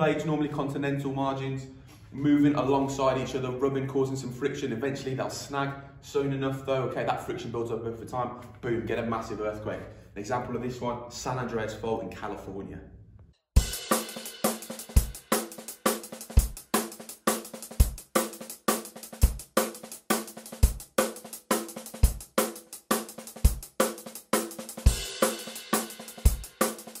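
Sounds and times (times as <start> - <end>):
drum kit groove: 13.6 - 27.0.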